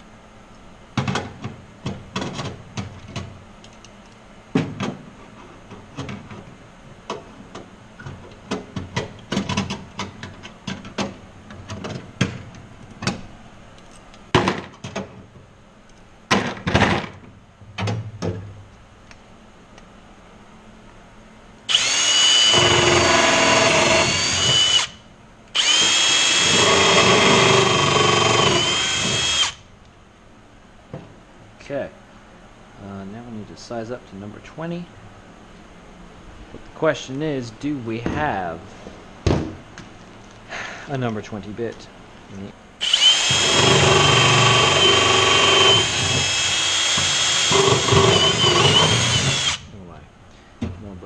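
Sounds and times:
cordless drill drilling through metal: 21.7 - 25.0, 25.6 - 29.6, 42.8 - 49.6.

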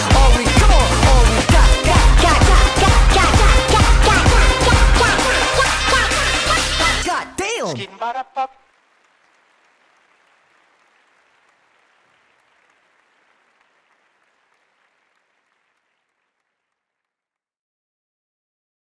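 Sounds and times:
crowd applause: 8.4 - 17.0.

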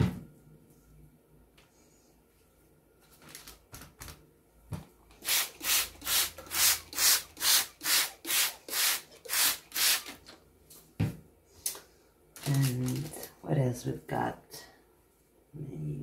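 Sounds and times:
spray bottle squirting onto paper: 5.2 - 10.2.

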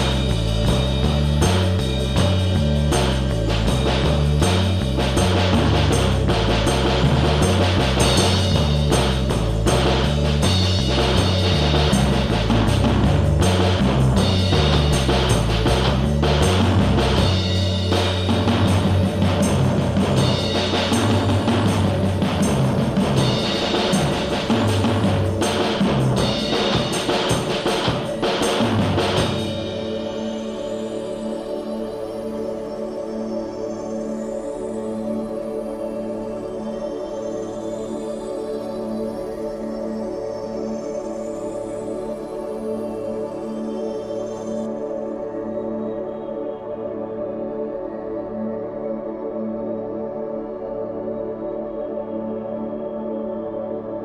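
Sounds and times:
stepping bass line: 0.0 - 29.8
drum kit: 0.0 - 30.9.

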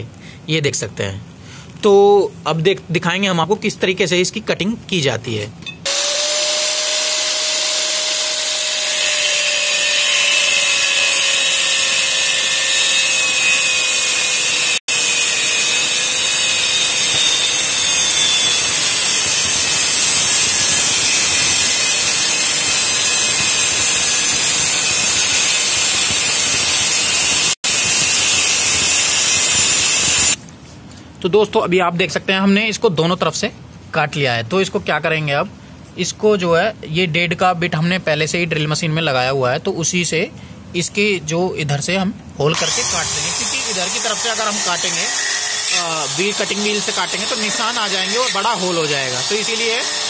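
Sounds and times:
angle grinder cutting metal: 5.9 - 30.4, 42.5 - 50.0
grinder motor whine: 5.9 - 30.4, 42.5 - 50.0.

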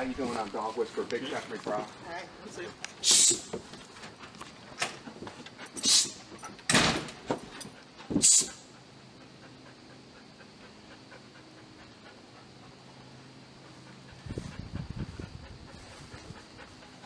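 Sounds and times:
short sharp hiss: 3.0 - 3.5, 5.8 - 6.3, 8.2 - 8.6
dog panting: 3.8 - 6.5, 7.4 - 17.0.

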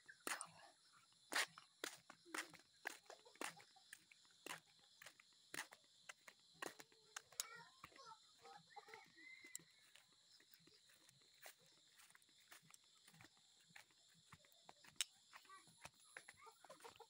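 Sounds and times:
faint footsteps on dirt path: 0.0 - 17.0.

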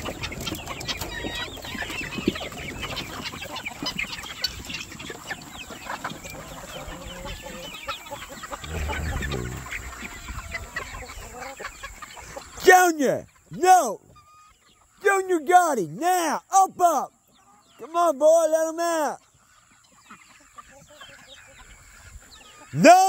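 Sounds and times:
hens and roosters clucking: 0.0 - 23.0
low rumble: 8.6 - 10.4.

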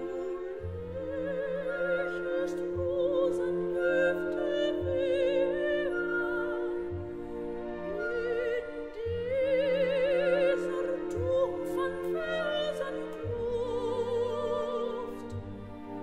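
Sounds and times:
operatic singing: 0.0 - 16.0
orchestral accompaniment: 0.0 - 16.0.

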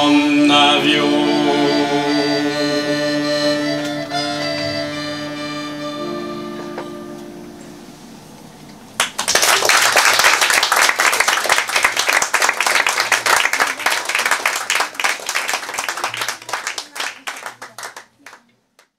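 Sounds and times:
audience applauding: 9.0 - 18.9.

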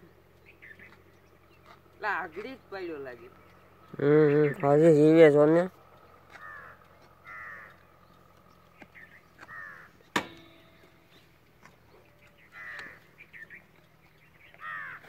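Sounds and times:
crows cawing: 6.2 - 10.1, 12.0 - 13.6, 14.3 - 15.0
sharp knock: 10.1 - 10.6.

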